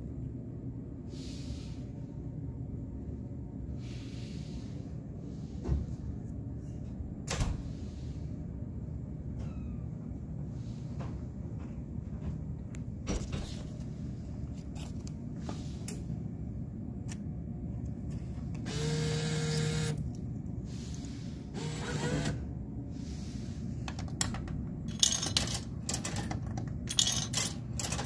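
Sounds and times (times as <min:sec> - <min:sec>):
bill acceptor motor whir: 0:18.6 - 0:20.0, 0:21.5 - 0:22.5.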